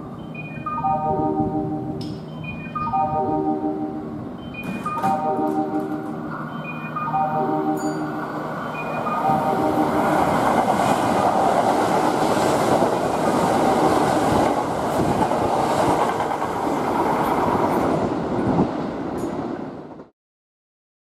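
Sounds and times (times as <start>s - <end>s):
train wheels rushing on rail: 8.2s - 20.1s.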